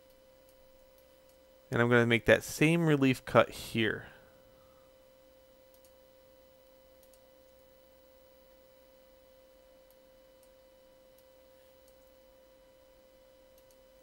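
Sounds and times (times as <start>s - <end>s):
faint electrical tone: 0.0s - 14.0s
faint clicks: 5.7s - 6.0s, 7.0s - 7.6s, 9.8s - 12.2s, 13.6s - 13.8s.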